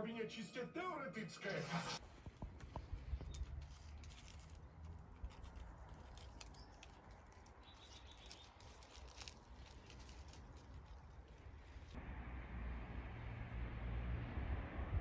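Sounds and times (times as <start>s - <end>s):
soft ticks and rustles: 2.0s - 12.0s
low steady rumble: 9.6s - 15.0s.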